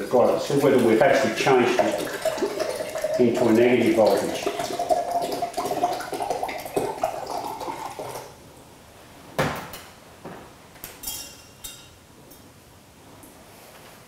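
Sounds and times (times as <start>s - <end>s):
water pouring into glass: 0.0s - 8.4s.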